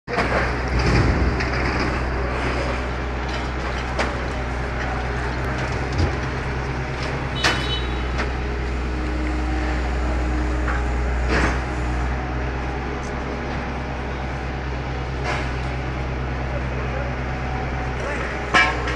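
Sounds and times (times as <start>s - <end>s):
metal clanks and knocks: 0.1s - 8.5s, 10.6s - 11.9s, 18.0s - 18.9s
heavy machinery drone: 0.1s - 18.9s.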